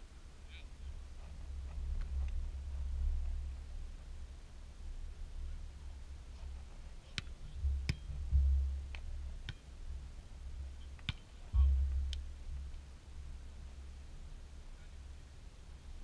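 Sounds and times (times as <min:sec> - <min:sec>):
hands slapping volleyball: 0:11.0 - 0:11.2.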